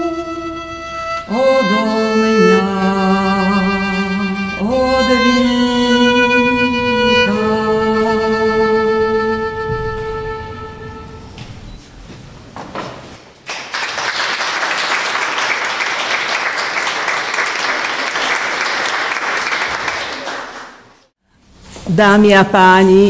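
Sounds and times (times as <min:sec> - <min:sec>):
audience applauding: 0:13.4 - 0:21.1.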